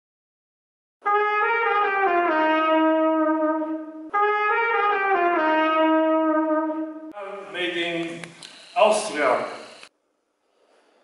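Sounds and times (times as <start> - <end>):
cornet playing descending notes: 1.0 - 7.8.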